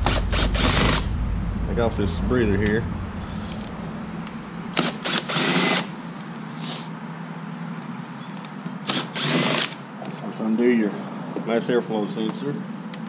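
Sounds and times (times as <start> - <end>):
cordless drill whining: 8.9 - 9.8.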